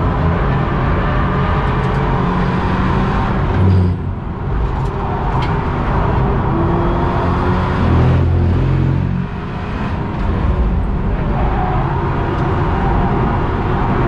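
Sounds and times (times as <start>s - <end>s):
wind noise: 9.6s - 14.0s.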